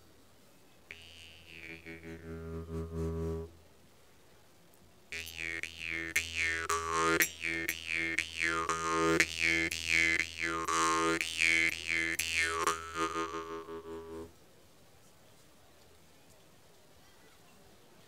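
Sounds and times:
jaw harp drone with plucks: 0:00.9 - 0:03.5, 0:05.1 - 0:14.3.

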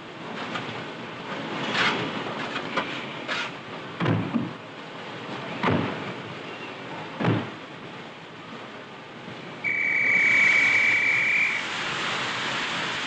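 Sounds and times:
train whistle blast: 0:09.6 - 0:11.8
steam hissing: 0:09.6 - 0:13.0.

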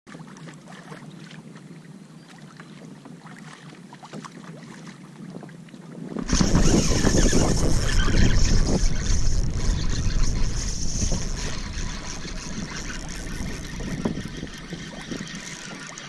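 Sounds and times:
small waves lapping against a hull: 0:00.1 - 0:16.0
wind buffeting microphone: 0:05.9 - 0:16.0.

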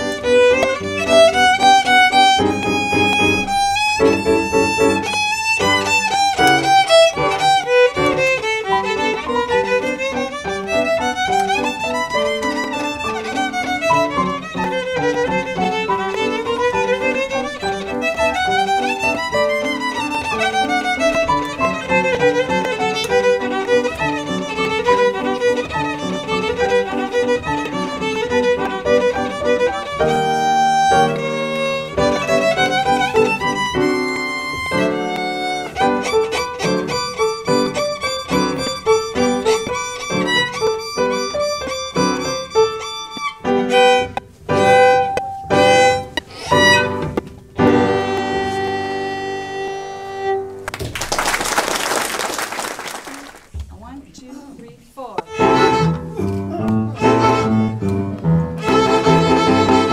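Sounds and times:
solo violin: 0:00.0 - 0:50.7, 0:55.0 - 0:59.9
piano accompaniment: 0:00.0 - 0:59.9
applause: 0:50.6 - 0:53.5.

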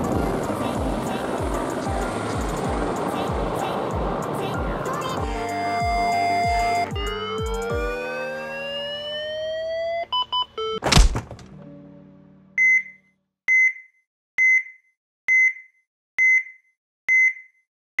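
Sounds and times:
rising siren-like tone: 0:05.2 - 0:10.8
quick beeps: 0:09.9 - 0:10.8, 0:12.6 - 0:17.6
heart monitor beep: 0:10.1 - 0:10.8, 0:12.6 - 0:17.6.

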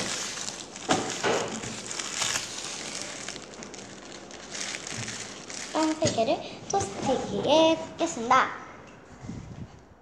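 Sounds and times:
plastic wrapping crackling: 0:00.0 - 0:06.4.

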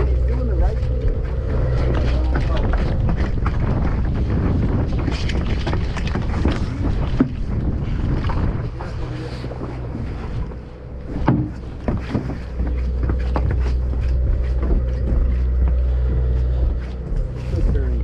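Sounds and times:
boat engine droning: 0:00.0 - 0:18.0
knocks and bumps: 0:11.0 - 0:18.0.

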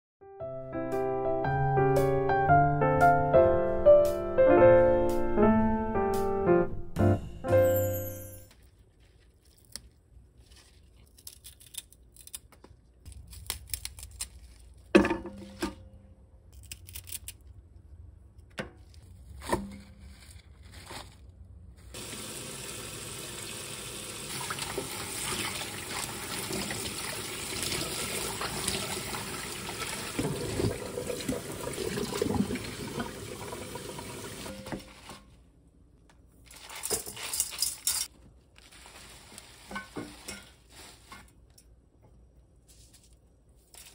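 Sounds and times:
leafy greens rustling: 0:08.5 - 0:14.9, 0:19.0 - 0:22.0, 0:36.4 - 0:41.5
stems snapping: 0:11.1 - 0:14.6
kitchen tap running into bowl: 0:22.0 - 0:34.8.

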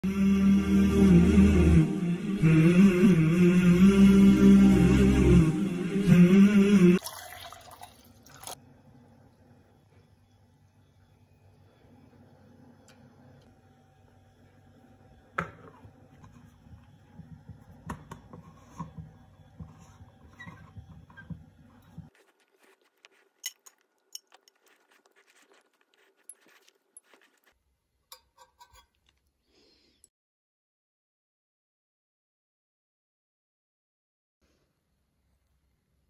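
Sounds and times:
spoon stirring and scraping in cup: 0:15.7 - 0:29.3.

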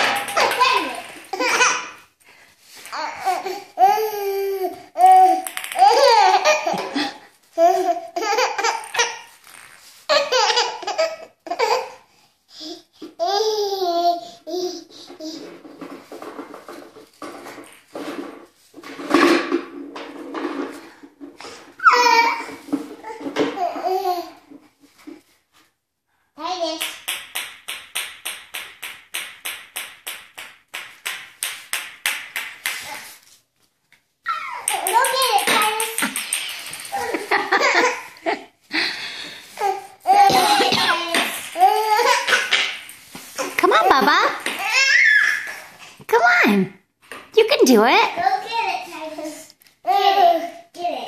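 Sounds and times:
baby laughing: 0:03.2 - 0:09.3, 0:10.1 - 0:12.0, 0:34.3 - 0:38.5, 0:39.6 - 0:42.6.

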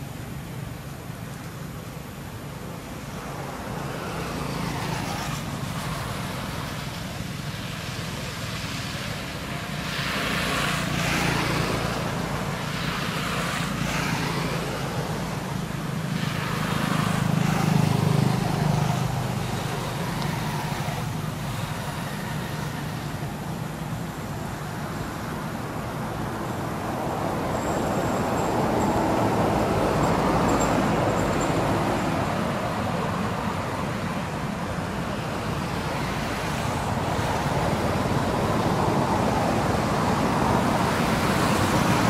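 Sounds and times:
road traffic passing: 0:00.0 - 0:42.0.

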